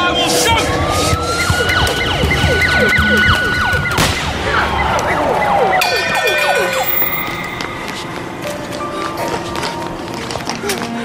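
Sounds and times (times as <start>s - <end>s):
emergency vehicle siren: 0.0s - 8.1s.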